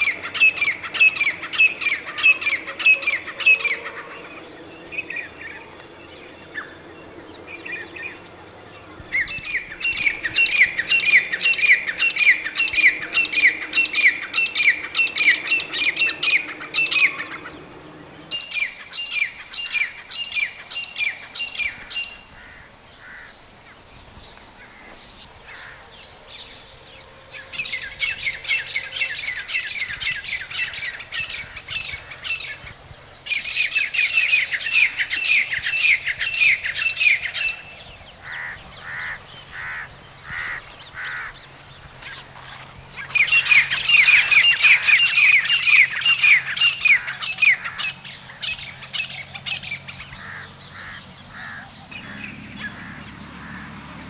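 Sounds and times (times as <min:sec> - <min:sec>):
francolin calling: 0:00.0 - 0:23.3, 0:43.0 - 0:53.7.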